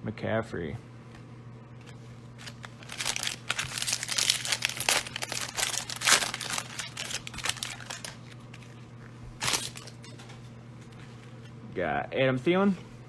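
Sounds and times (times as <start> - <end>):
plastic wrapper tearing and crinkling: 2.4 - 8.7, 9.4 - 10.0.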